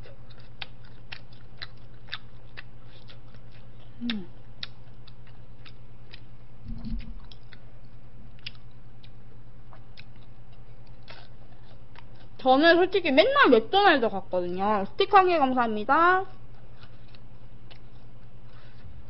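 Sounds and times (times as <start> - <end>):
wet chewing mouth sounds: 0.0 - 12.4, 16.3 - 19.0
steady low hum: 0.0 - 19.0
low thump: 6.6 - 7.2.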